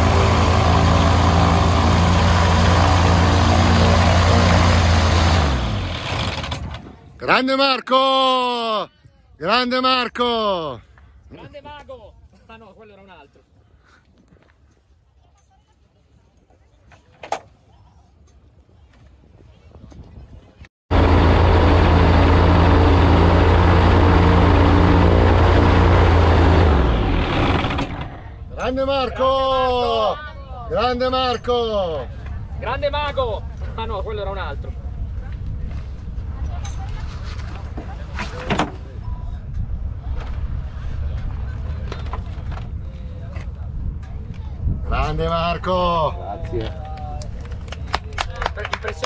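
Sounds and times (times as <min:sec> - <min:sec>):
aircraft engine idling: 0:20.9 - 0:28.3.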